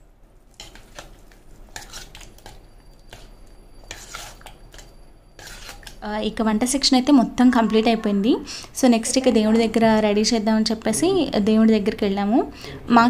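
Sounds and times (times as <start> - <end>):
metal spoon scraping pot: 1.7 - 6.0.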